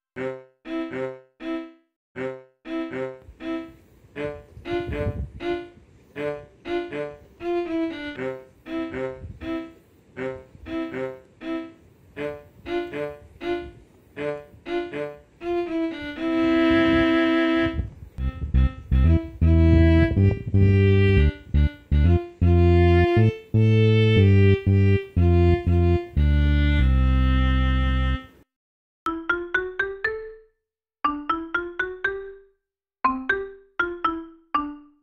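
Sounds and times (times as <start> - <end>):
string background music: 6.7 - 9.7, 14.7 - 28.3.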